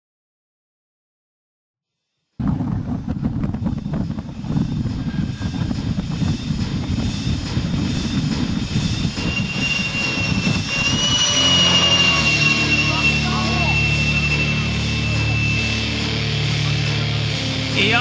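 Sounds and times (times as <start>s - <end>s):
high jet whine rising in pitch: 2.4s - 18.0s
model jet engine roar: 2.4s - 18.0s.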